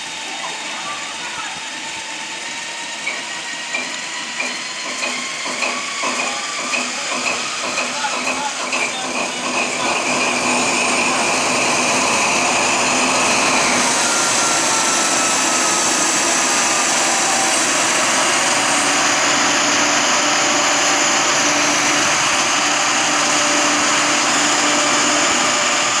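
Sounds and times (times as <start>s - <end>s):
diesel locomotive engine running: 0.0s - 26.0s.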